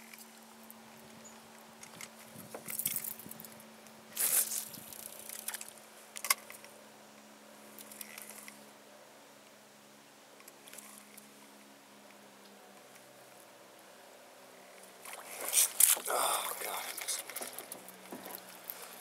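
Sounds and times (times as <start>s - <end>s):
faint steady hum: 0.0s - 19.0s
fishing reel rustles and clicks: 1.8s - 6.7s, 7.8s - 8.6s, 10.4s - 11.2s, 14.7s - 19.0s.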